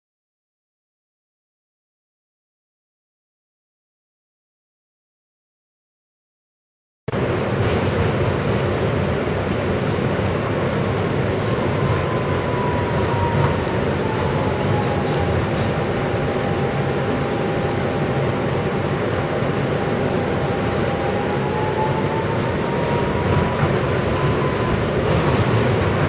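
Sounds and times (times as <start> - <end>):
train wheels rumbling on rails: 7.2 - 26.0.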